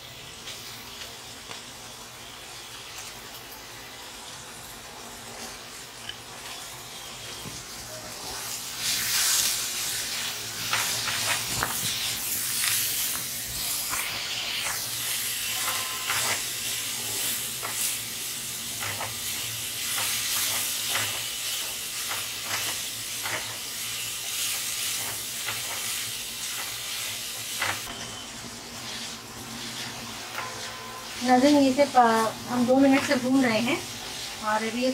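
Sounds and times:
vegetables sizzling in wok: 0.0 - 34.9
spatula scraping and tapping pan: 18.7 - 23.7, 28.9 - 34.3.

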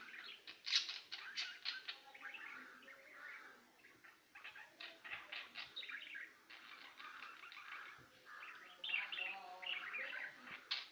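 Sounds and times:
finch chirping: 0.0 - 10.9.

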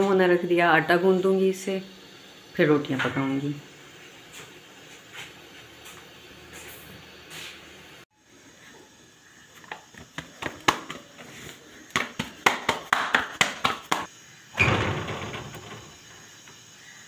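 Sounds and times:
dough slapped on rolling board: 11.9 - 14.1.

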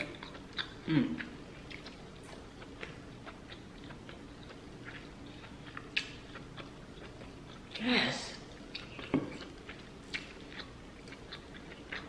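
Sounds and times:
person chewing: 0.0 - 12.0.

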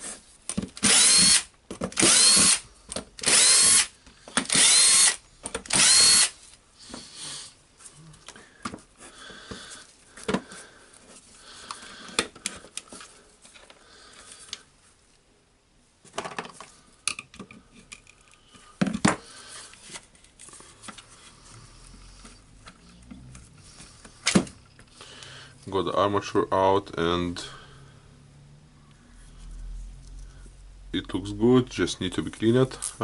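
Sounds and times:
plastic and metal parts clattering: 16.0 - 21.0.

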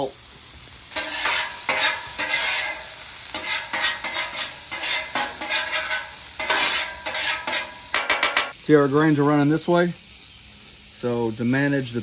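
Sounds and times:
vegetables sizzling: 0.0 - 12.0
metal blade scraping griddle: 0.9 - 8.5.

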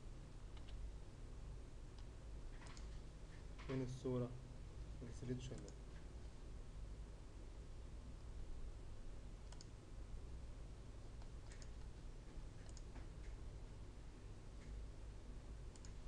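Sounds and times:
steady low hum: 0.0 - 16.0
faint computer mouse clicks: 0.6 - 0.8, 9.4 - 9.8, 11.2 - 11.9, 12.6 - 13.4, 15.7 - 16.0.

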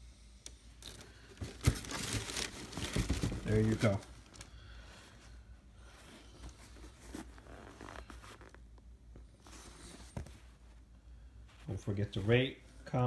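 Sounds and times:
sneakers rustling in cardboard box: 0.8 - 8.6, 9.2 - 10.9.

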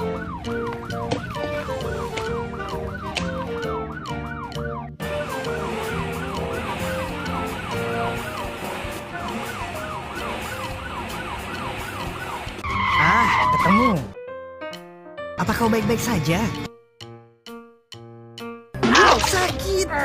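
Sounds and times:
background music with held notes: 0.0 - 12.9, 13.6 - 20.0
police siren yelping: 0.0 - 14.0.

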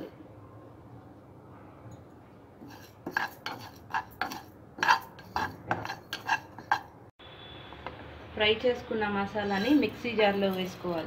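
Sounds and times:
spatula scraping a pan: 2.6 - 7.0.

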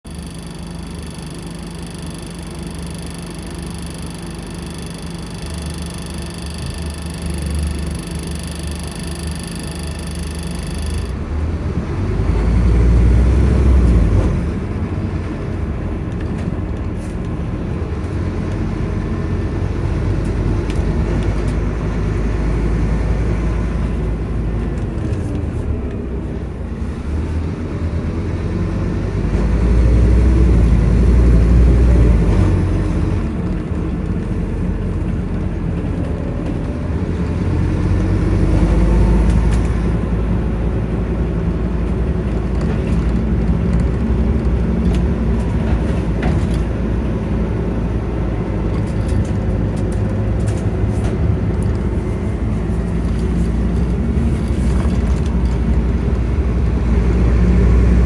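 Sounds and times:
bus diesel engine: 0.0 - 58.0
road noise: 0.0 - 58.0.

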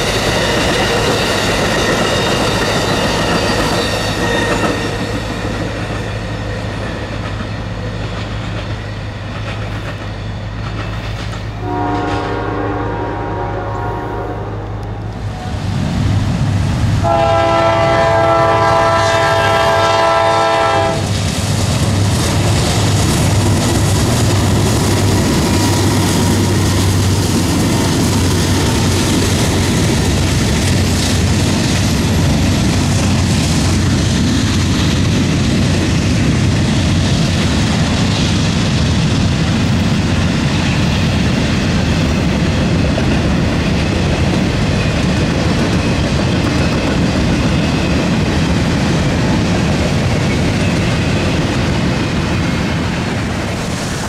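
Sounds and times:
freight train passing: 0.0 - 54.0
locomotive air horn blast: 11.6 - 15.0, 17.0 - 21.1.

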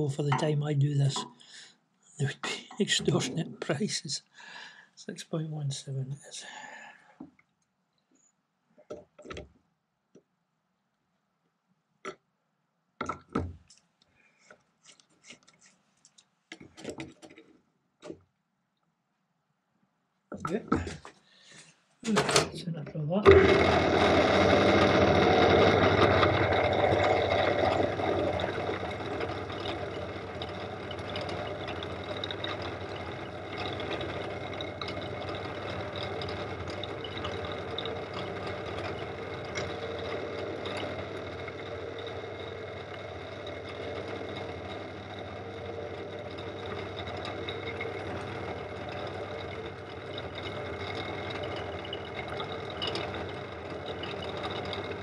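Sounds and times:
drill motor hum: 23.2 - 55.0.

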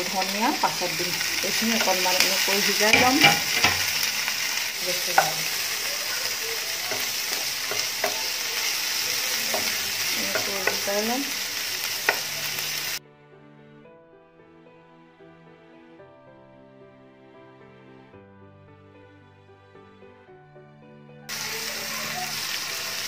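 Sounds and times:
background music: 0.0 - 5.8, 6.8 - 21.4
vegetables sizzling in hot oil: 0.0 - 13.0, 21.3 - 23.0
wooden spatula knocking pan: 0.5 - 11.4, 12.0 - 12.3.

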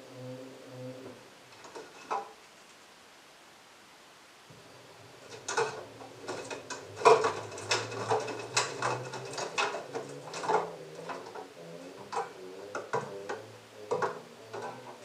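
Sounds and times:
washing machine motor hum: 4.5 - 15.0.

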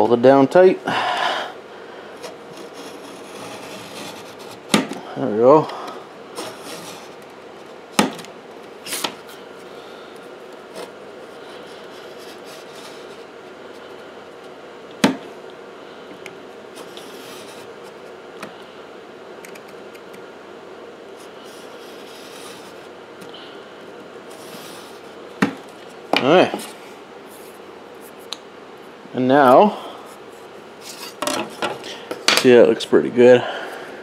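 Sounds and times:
knife scraping circuit board: 2.5 - 4.7.

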